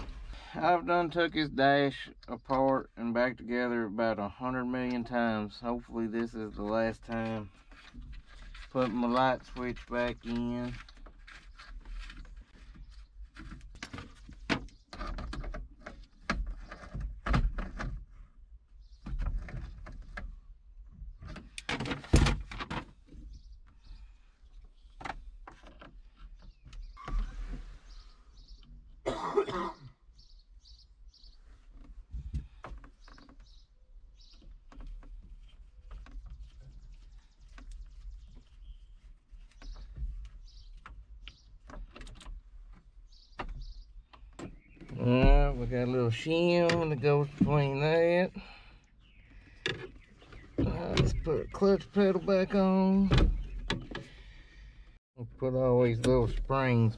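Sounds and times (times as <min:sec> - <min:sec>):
person coughing: 0:29.0 - 0:29.9.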